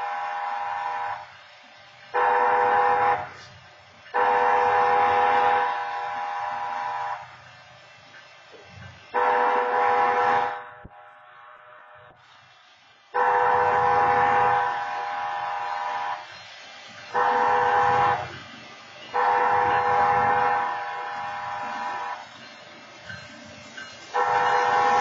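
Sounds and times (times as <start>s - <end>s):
train horn blasts: 0.0s - 1.4s, 2.1s - 7.4s, 9.1s - 12.2s, 13.1s - 16.3s, 17.1s - 18.4s, 19.1s - 22.4s, 24.1s - 25.0s.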